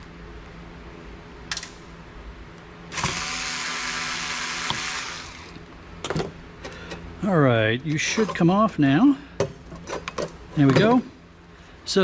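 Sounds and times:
electric screwdriver running: 2.9s - 5.6s.

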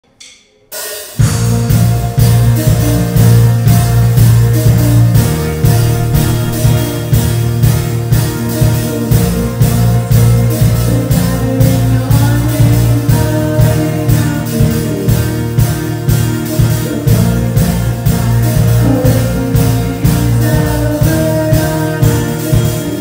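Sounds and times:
rock band playing: 1.2s - 23.0s
person singing: 8.4s - 23.0s.

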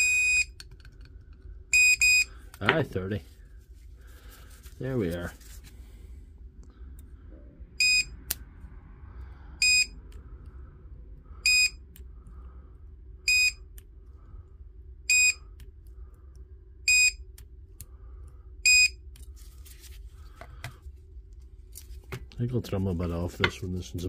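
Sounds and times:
spot welder high beeps: 0.0s - 0.5s, 1.8s - 2.3s, 11.4s - 11.8s, 13.3s - 13.6s, 15.1s - 15.4s, 16.9s - 17.2s, 18.6s - 19.0s.

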